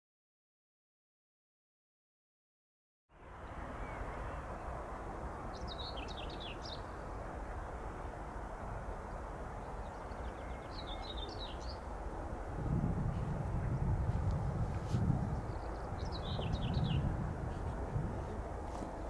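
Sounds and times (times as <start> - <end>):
low outdoor background noise: 3.1 - 19.0
songbird twittering: 5.5 - 7.0, 9.7 - 11.9, 15.3 - 17.1.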